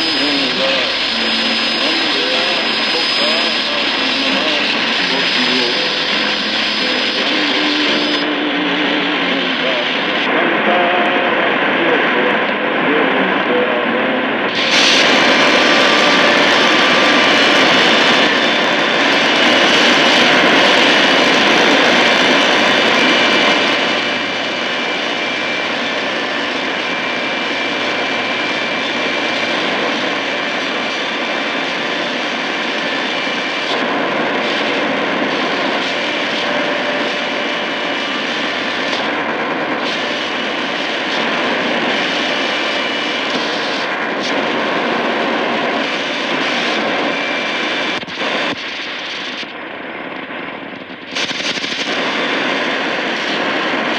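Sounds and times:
faint steady whistling tones: 0.0 - 13.8
shortwave radio static hiss: 0.0 - 53.9.

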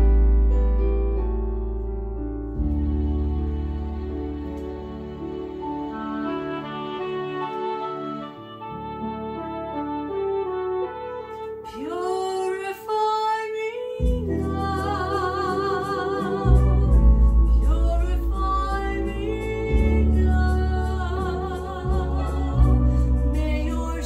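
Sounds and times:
deep bass notes: 0.0 - 5.9, 14.0 - 24.0
electronic keyboard chords: 0.0 - 11.8, 14.0 - 24.0
woman singing with vibrato: 11.7 - 24.0.

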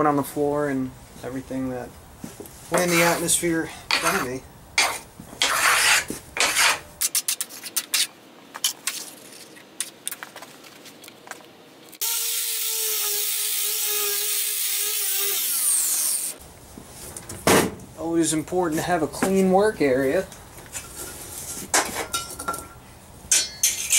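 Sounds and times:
metal filings scraped on workbench: 3.9 - 8.1.

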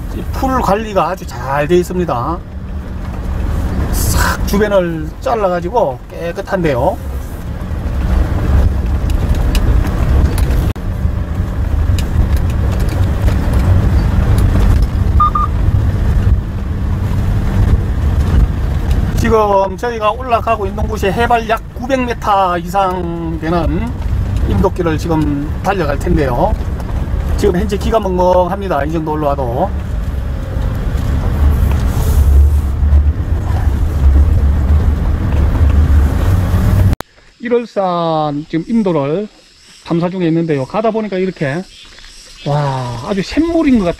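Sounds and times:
vehicle engine and road rumble: 0.0 - 37.4, 38.2 - 43.9.

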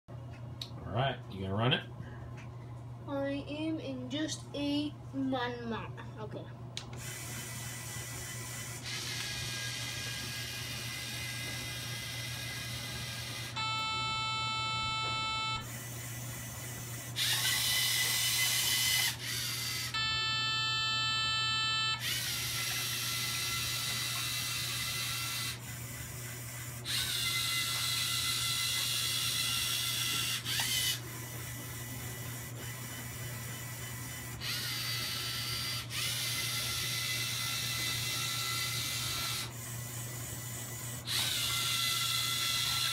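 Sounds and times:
robot motors whirring: 7.0 - 20.1, 20.9 - 42.9.

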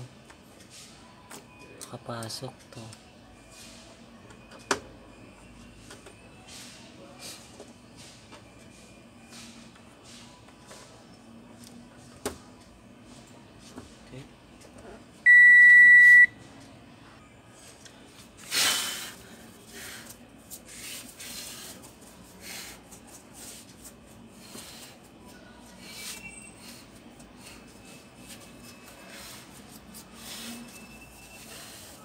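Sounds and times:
cloth wiping a screen: 19.5 - 24.8, 27.4 - 32.0.

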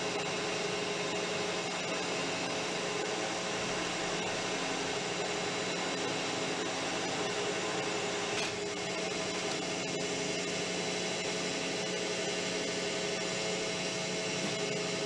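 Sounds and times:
metal lathe running: 1.2 - 15.0.

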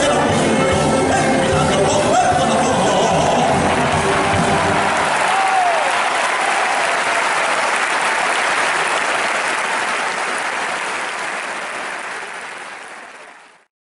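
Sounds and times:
audience applauding: 2.9 - 13.7.

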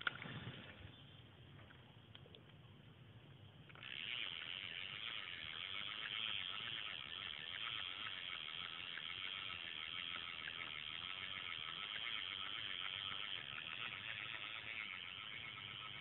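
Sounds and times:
insects trilling: 3.8 - 16.0.

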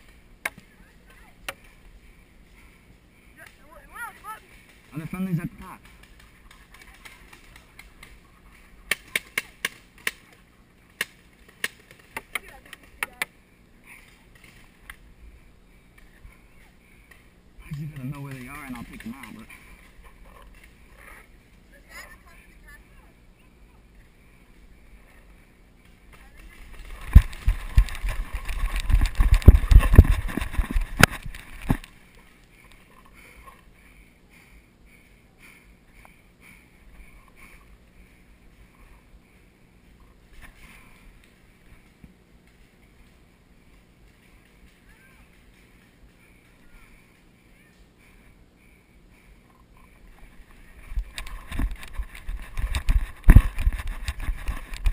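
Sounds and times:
running footsteps on forest floor: 1.6 - 10.5, 17.7 - 21.7, 25.9 - 49.3, 50.0 - 54.9
paintball markers firing: 8.9 - 10.4.

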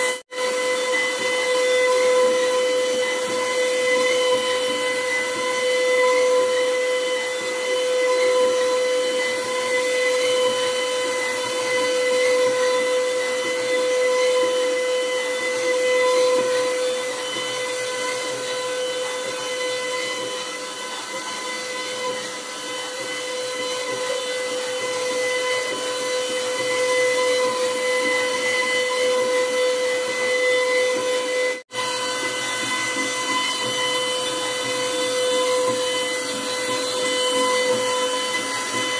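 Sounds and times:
router bit cutting wood: 0.0 - 38.9
router spindle whining: 0.0 - 38.9.

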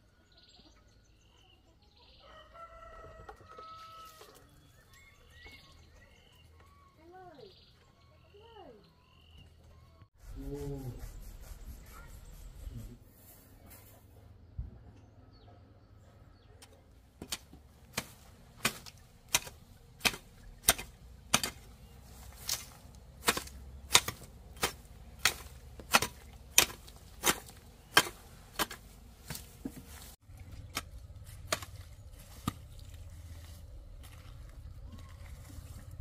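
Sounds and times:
hand tool chopping strikes: 17.2 - 21.7, 22.3 - 29.8, 30.7 - 31.8.

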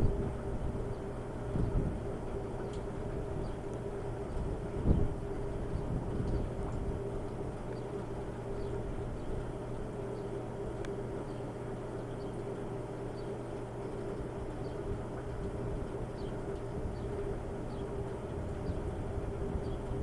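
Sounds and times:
steady low hum: 0.0 - 20.0
steady rushing noise: 14.6 - 20.0.

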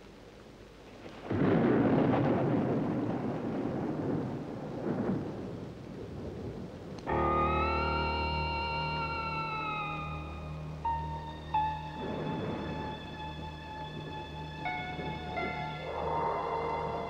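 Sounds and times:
thunder rumbling: 1.0 - 17.0
music: 7.1 - 17.0.

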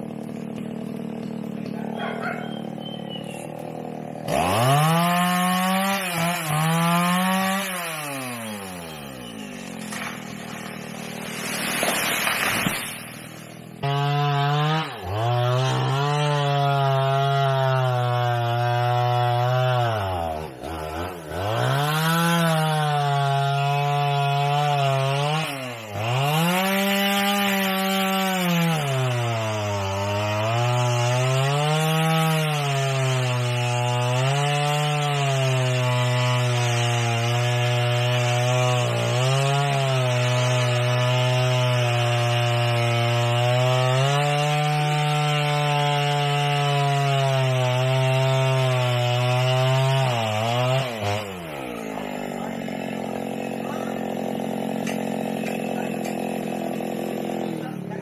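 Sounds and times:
chainsaw cutting wood: 0.0 - 58.0.

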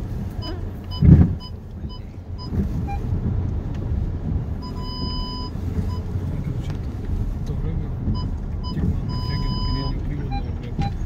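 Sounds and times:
low rumble of car moving: 0.0 - 11.0
parking sensor beeps: 0.4 - 3.1, 4.6 - 6.2, 8.1 - 11.0.

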